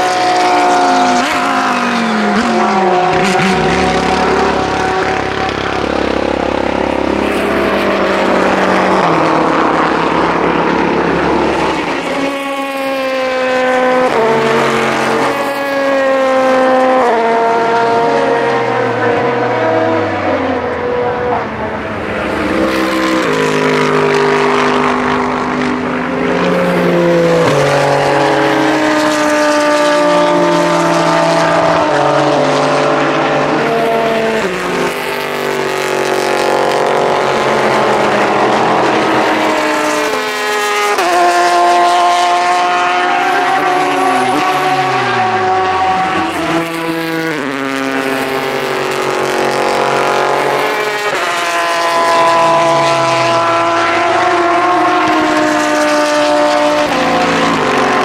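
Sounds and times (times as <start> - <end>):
engine downshifting under braking: 0.0 - 58.0
race car engines shifting gears: 0.0 - 58.0.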